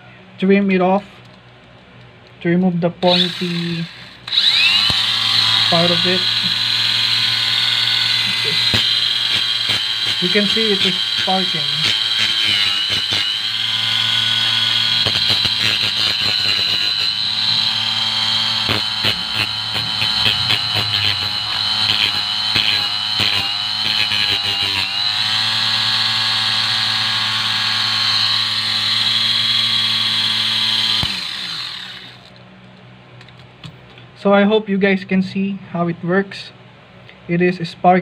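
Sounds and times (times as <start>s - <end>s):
metal tip scraping grinding disc: 3.0s - 32.0s
mini grinder motor whining: 3.0s - 32.4s.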